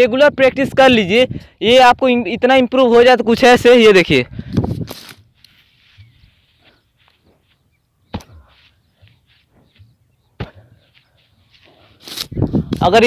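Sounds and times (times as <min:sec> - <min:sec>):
bare feet thudding on ground: 0:04.6 - 0:13.0
soft footfalls: 0:05.6 - 0:11.8.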